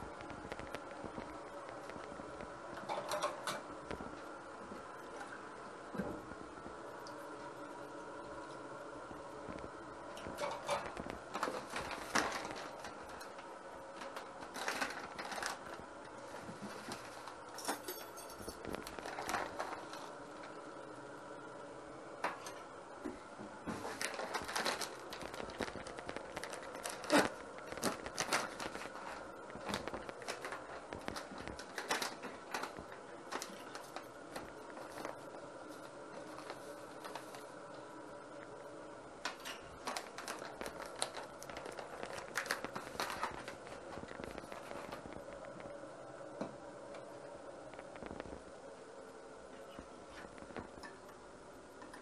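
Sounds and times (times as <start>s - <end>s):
steady appliance hum: 0.0s - 52.0s
utensils and dishes clattering: 2.8s - 3.7s, 10.4s - 12.6s, 16.8s - 19.9s.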